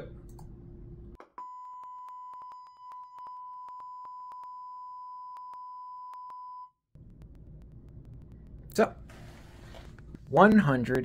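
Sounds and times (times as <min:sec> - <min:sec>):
sine test tone: 0:01.4 - 0:08.4.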